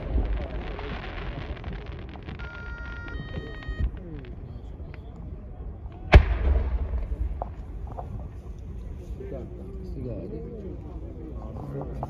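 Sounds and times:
electronic beeping tone: 0:02.4 - 0:03.9
firework bang: 0:06.0 - 0:08.3
low rumble: 0:06.1 - 0:08.8.

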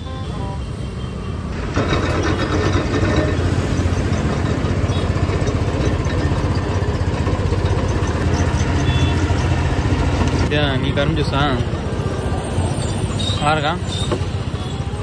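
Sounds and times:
juice crusher mechanical rumble: 0:01.6 - 0:10.5.

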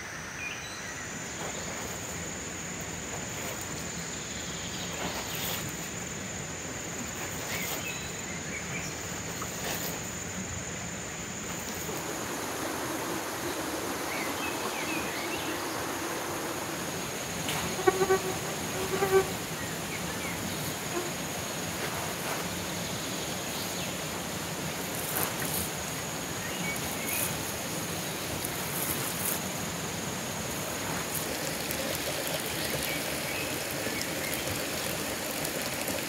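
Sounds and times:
water spray pattering on leaves: 0:09.0 - 0:10.2, 0:11.4 - 0:36.0
high-pitched insect drone: 0:11.8 - 0:19.5.

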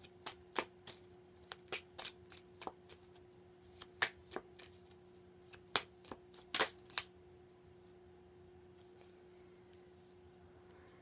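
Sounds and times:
cards shuffling: 0:00.0 - 0:07.1
faint hum: 0:00.0 - 0:11.0.

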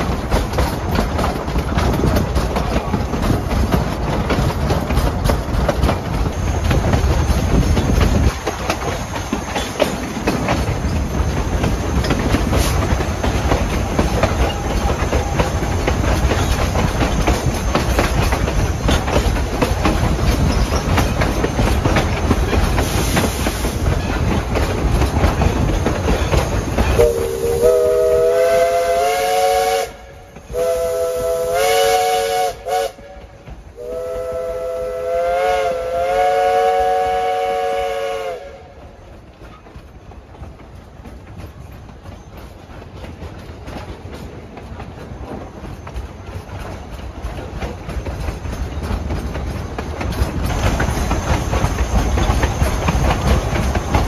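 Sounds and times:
train wheels on rails: 0:00.0 - 0:54.0
steam locomotive chime whistle: 0:26.8 - 0:39.0.

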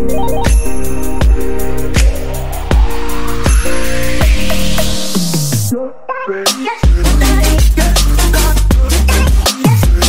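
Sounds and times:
electronic dance music: 0:00.0 - 0:10.0
kick drum: 0:00.5 - 0:03.6, 0:06.8 - 0:07.8, 0:08.7 - 0:10.0
rising noise sweep: 0:00.8 - 0:06.0.

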